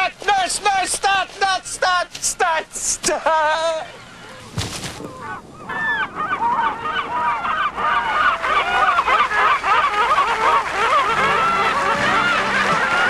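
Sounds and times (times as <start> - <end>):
geese honking: 0.0 - 13.0
music: 11.2 - 13.0.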